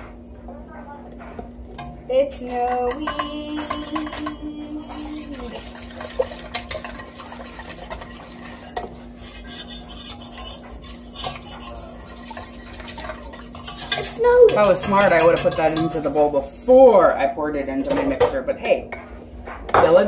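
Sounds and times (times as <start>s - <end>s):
whisk clinking against metal: 1.7s - 16.3s
wire whisk beating in metal bowl: 1.7s - 16.4s.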